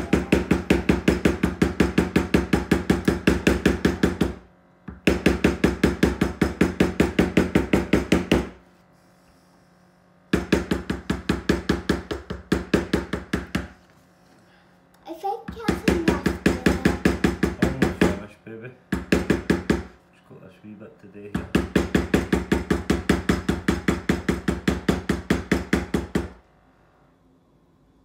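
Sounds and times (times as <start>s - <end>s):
mallet striking leather stamping tool: 0.0s - 8.6s, 10.3s - 13.8s, 16.2s - 18.3s, 18.9s - 20.0s, 21.4s - 26.4s.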